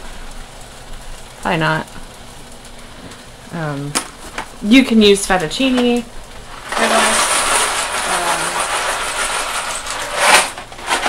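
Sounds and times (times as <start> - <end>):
dry pasta pouring rattle: 6.4 - 11.0.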